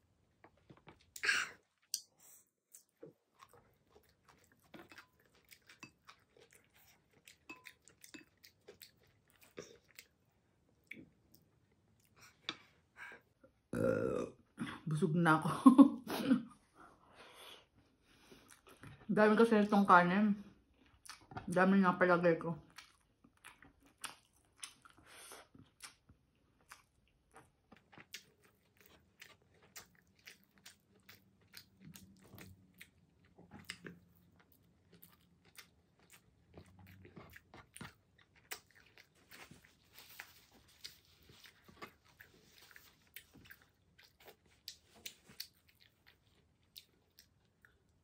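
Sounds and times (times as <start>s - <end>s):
person chewing: 0.4s - 12.8s, 22.7s - 48.0s.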